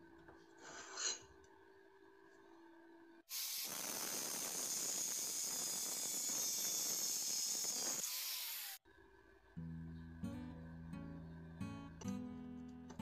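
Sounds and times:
angle grinder cutting steel: 0:03.3 - 0:08.8.

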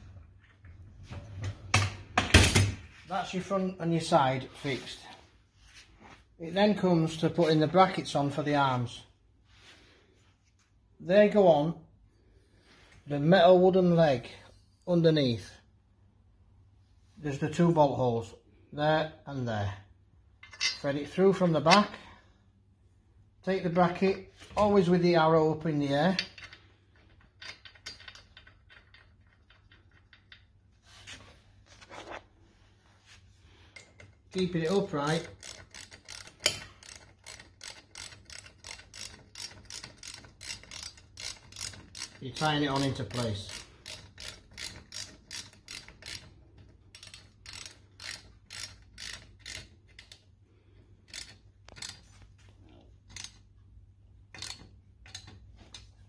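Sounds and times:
metal bracket and bolt clicking: 0:20.4 - 0:20.9, 0:54.2 - 0:56.0
ratchet spanner clicking: 0:33.8 - 0:50.3, 0:51.0 - 0:52.2, 0:53.0 - 0:53.4, 0:54.3 - 0:55.8.

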